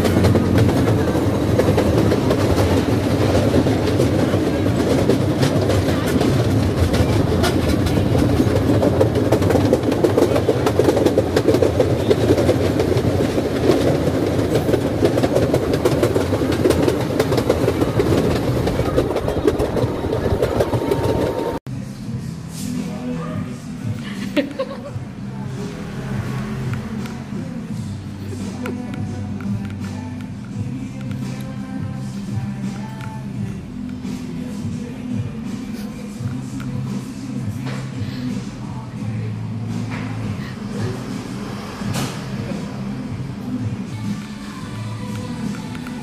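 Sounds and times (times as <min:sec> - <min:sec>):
train wheels rattling on rails: 0:00.0 - 0:21.6.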